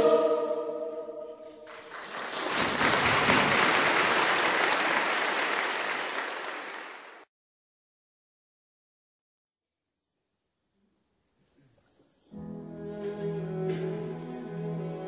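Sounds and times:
choir singing chord: 0.0 - 1.6
audience applause: 1.6 - 7.3.

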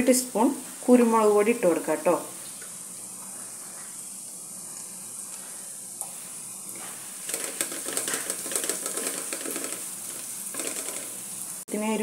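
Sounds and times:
onions sizzling in hot oil: 0.0 - 12.0
wooden spatula scraping pan: 6.8 - 11.2.

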